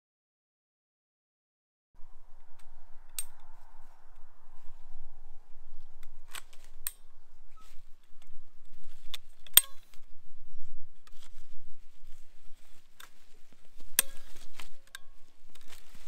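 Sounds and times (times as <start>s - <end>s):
loppers clicking and snapping: 9.0s - 10.1s, 13.0s - 16.0s.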